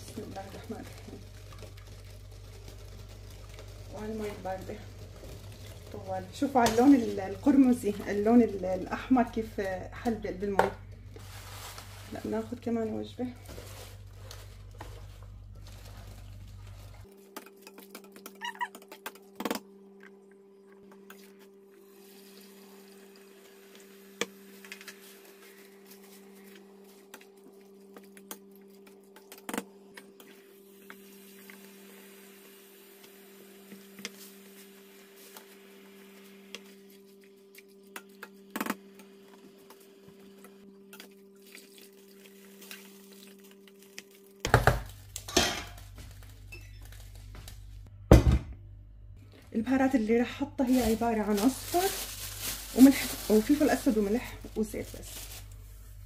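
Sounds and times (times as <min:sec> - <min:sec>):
low hum: 0:00.0 - 0:17.2.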